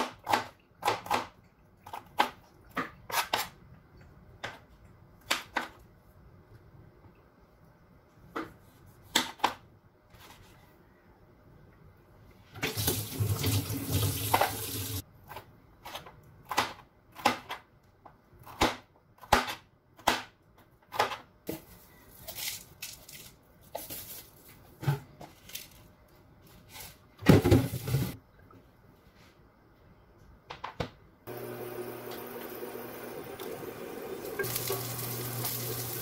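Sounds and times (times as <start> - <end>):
tap running: 31.3 - 36.0.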